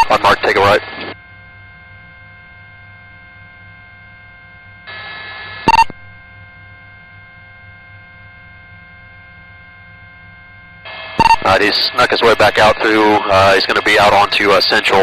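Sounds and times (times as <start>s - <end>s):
radio static hiss: 0.0s - 1.2s, 10.9s - 15.0s
radio hum with high tones: 0.0s - 15.0s
short loud electronic beep: 5.7s - 5.9s, 11.1s - 11.5s.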